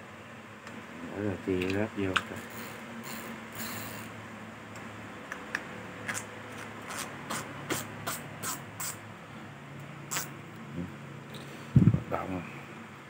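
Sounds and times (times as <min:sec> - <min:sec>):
low fan hum: 0:00.0 - 0:13.0
fishing reel clicking: 0:02.4 - 0:04.1.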